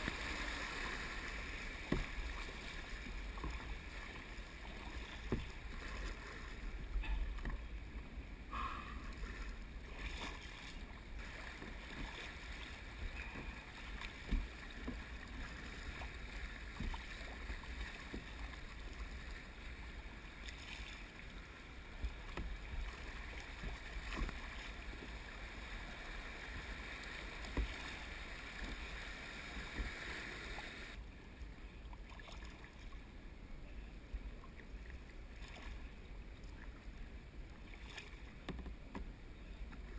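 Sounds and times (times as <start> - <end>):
river water rushing and splashing: 0.0 - 31.0
paddle strokes knocking: 4.6 - 6.1.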